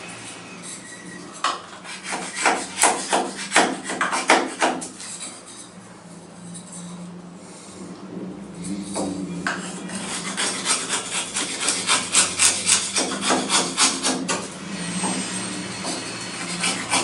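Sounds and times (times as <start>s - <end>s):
knife whittling wood: 0.8s - 5.7s, 8.7s - 17.0s.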